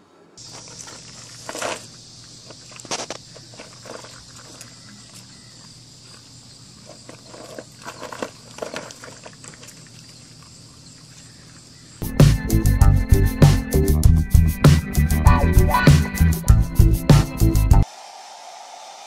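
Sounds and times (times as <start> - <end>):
loud music with steady beat: 12.0 - 17.8.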